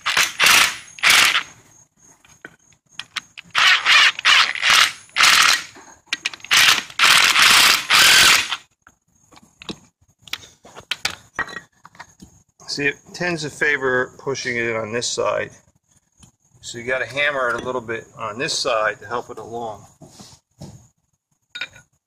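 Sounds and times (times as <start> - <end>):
cordless impact driver bursts: 0.0 - 1.5, 3.5 - 5.7, 6.5 - 8.6
clicks and knocks of parts handled: 2.2 - 3.6, 4.2 - 7.0, 8.8 - 12.4.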